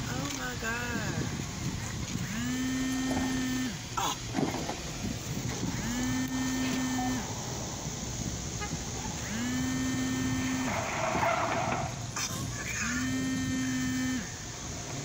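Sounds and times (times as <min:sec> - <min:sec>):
background traffic noise: 0:00.0 - 0:15.0
car horn blasts: 0:08.6 - 0:11.9.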